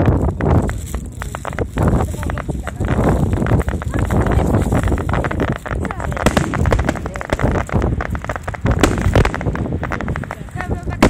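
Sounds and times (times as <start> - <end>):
firework shells crackling: 0.0 - 11.0
low rumble of booms: 0.0 - 11.0
sharp firework bangs: 0.0 - 11.0.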